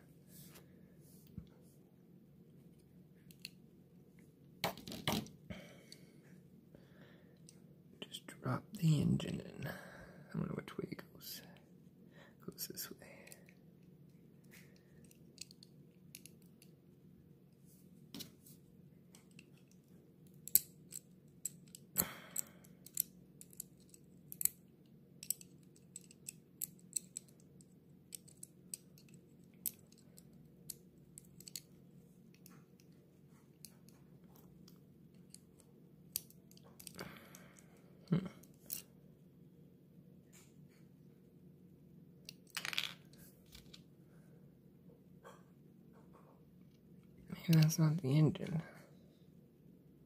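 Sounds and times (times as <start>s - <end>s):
small plastic parts clicking: 14.4s - 16.7s, 19.1s - 24.6s, 25.2s - 31.7s, 34.6s - 37.6s, 38.4s - 38.9s.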